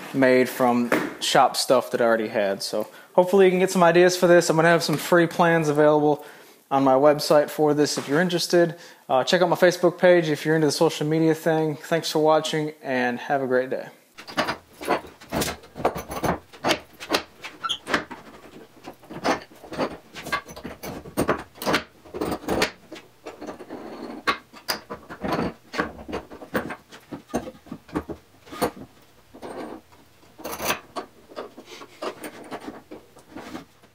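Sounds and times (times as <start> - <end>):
wooden vise knocks and clicks: 14.2 - 33.9.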